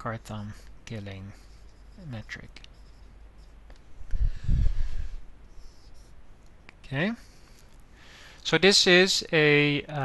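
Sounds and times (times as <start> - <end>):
microphone rustle: 4.0 - 5.2.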